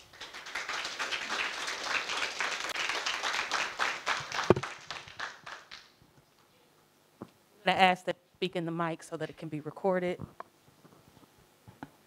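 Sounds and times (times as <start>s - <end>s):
small audience applauding: 0.0s - 6.0s.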